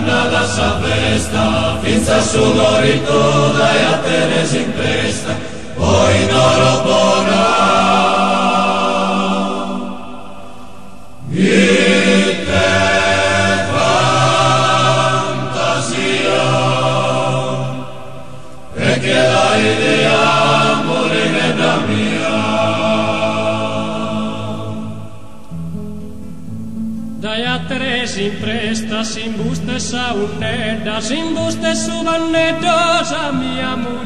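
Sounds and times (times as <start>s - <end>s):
men's choir singing: 0.0s - 25.4s.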